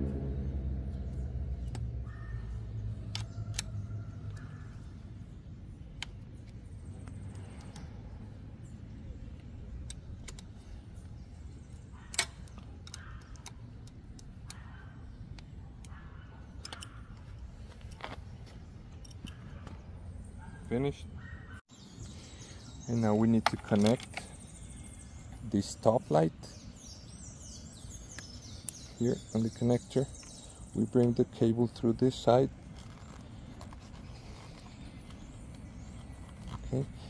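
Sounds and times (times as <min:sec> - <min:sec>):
passing vehicle rumble: 0:00.0 - 0:05.8.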